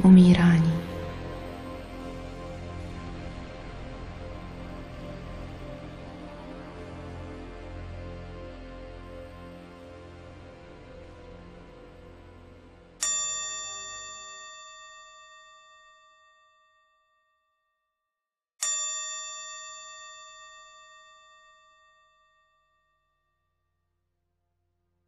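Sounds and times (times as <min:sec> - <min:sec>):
soft background music: 0:00.0 - 0:14.1
meditation bell ringing: 0:13.0 - 0:17.8, 0:18.6 - 0:23.6.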